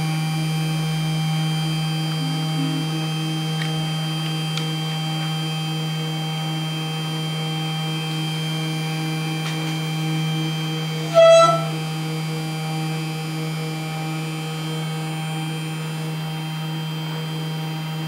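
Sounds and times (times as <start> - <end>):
short loud whine: 1.8 - 3.6, 11.0 - 12.0.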